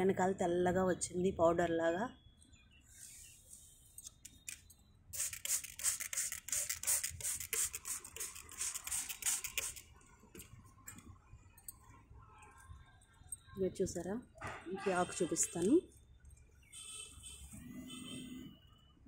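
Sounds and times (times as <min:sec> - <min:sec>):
spray bottle spraying: 0:05.1 - 0:09.9.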